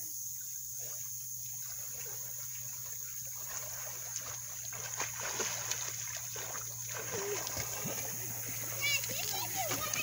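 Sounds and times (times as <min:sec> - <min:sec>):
water splashing: 0:00.0 - 0:10.0.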